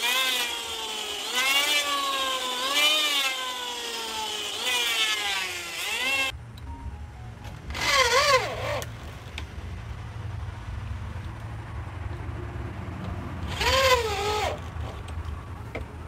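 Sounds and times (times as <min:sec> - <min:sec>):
electric drill boring into wood: 0:00.0 - 0:06.3, 0:07.7 - 0:08.9, 0:13.5 - 0:14.8
steady low hum: 0:01.8 - 0:16.0.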